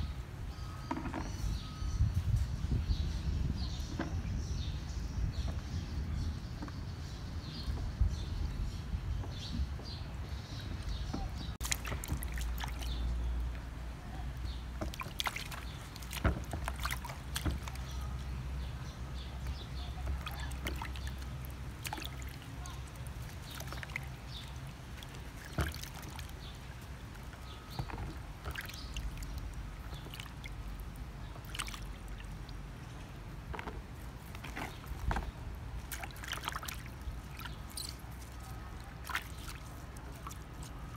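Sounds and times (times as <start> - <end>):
small drips and knocks: 0.9 - 1.6, 10.7 - 40.9
water sloshing and splashing: 10.4 - 40.9.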